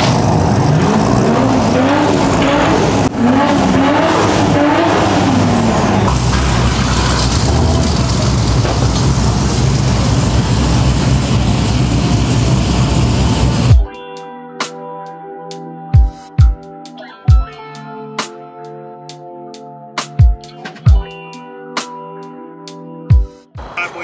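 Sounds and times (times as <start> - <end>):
car engines revving: 0.0 - 13.8, 23.6 - 24.0.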